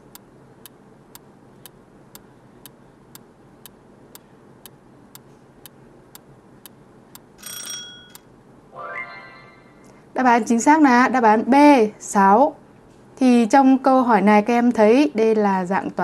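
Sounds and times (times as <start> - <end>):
clock ticking: 0.0 - 0.8
light steady hiss: 0.0 - 7.4.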